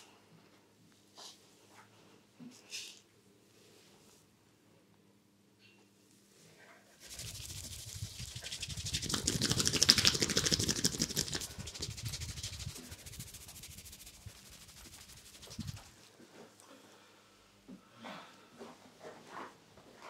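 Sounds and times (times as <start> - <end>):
hands rubbing through hair: 7.0 - 16.1.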